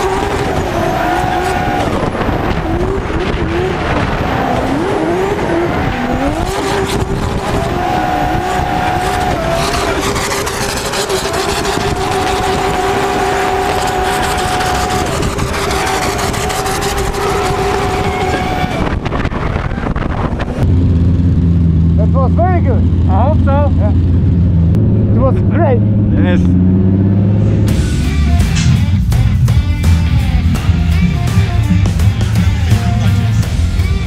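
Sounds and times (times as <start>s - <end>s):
tyre noise: 0.0s - 20.8s
car engine revving: 0.0s - 34.0s.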